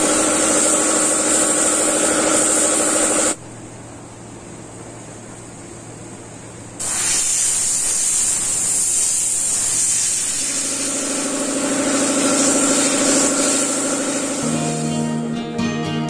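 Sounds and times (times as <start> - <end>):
airbrush hissing: 0.0 - 3.4, 6.8 - 15.2
steady hum: 0.0 - 15.6
music: 14.4 - 16.0.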